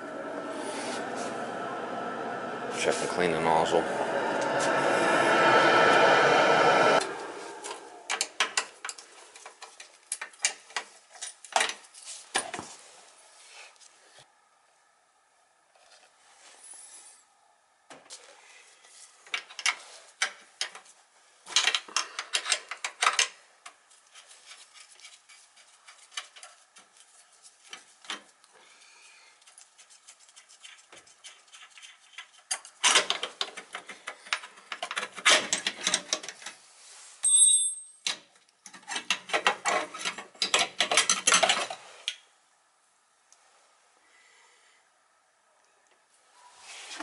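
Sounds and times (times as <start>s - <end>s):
high metallic ring: 37.2s - 38.0s.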